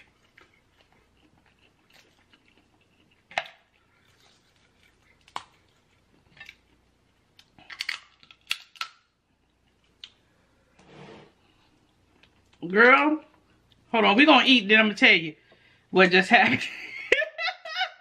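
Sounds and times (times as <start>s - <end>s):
person chewing food: 0.0s - 10.6s, 11.4s - 12.6s.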